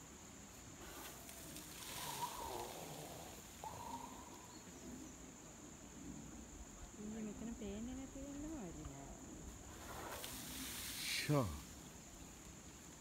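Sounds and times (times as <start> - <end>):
crickets droning: 0.0 - 13.0
dirt spraying and scattering: 0.6 - 4.2, 9.5 - 12.7.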